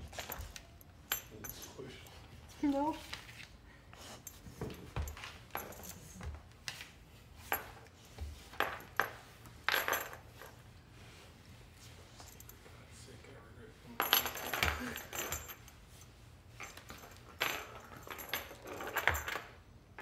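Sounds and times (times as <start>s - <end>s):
metal collar clinking: 0.0s - 2.3s, 4.2s - 6.2s, 8.6s - 10.6s, 14.0s - 19.6s.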